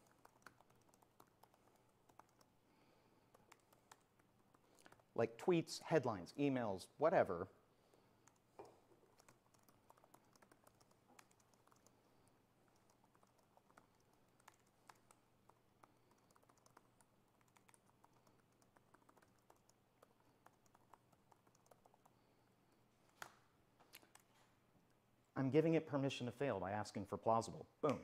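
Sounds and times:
laptop keyboard typing: 0:00.0 - 0:05.2, 0:08.2 - 0:22.4.

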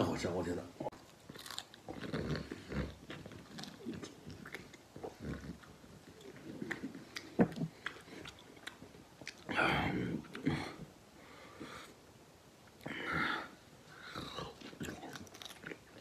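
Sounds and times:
person chewing: 0:00.9 - 0:10.6, 0:14.0 - 0:16.0.

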